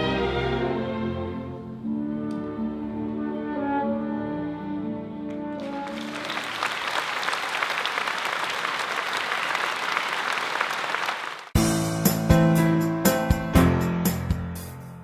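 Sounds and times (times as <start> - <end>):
audience applause: 5.6 - 11.6.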